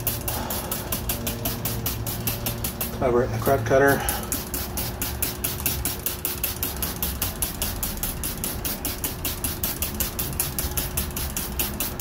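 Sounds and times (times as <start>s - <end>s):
spray bottle squirting: 0.0s - 12.0s.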